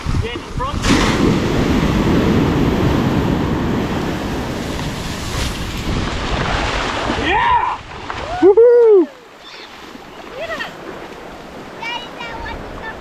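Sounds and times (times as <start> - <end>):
wind buffeting microphone: 0.0 - 8.6
surf breaking on sand: 0.0 - 13.0.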